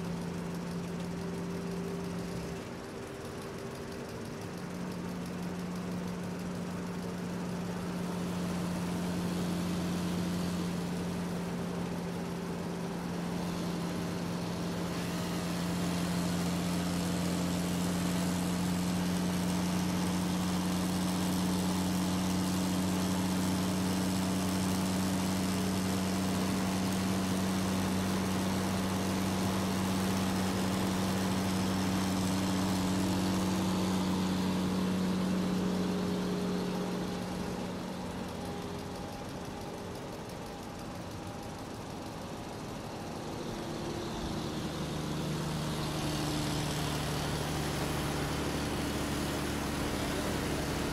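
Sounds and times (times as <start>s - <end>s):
engine running with low hum: 0.0s - 50.9s.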